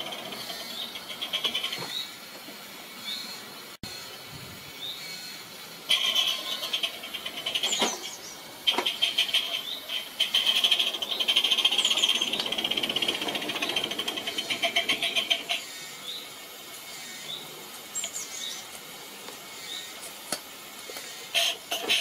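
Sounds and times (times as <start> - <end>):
small steam locomotive rattling: 0.0 - 4.3, 5.2 - 22.0
bird chirping: 9.0 - 16.3.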